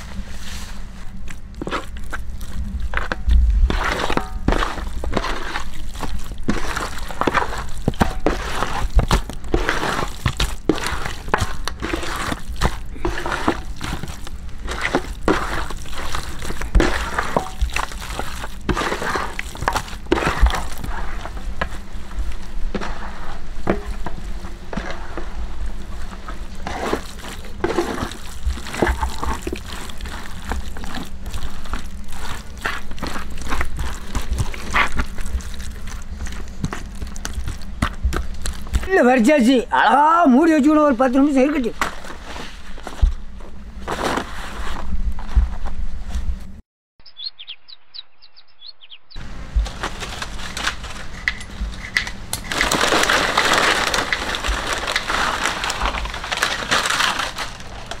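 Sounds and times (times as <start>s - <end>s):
hands squishing raw fish: 0.0s - 23.0s, 26.1s - 39.2s.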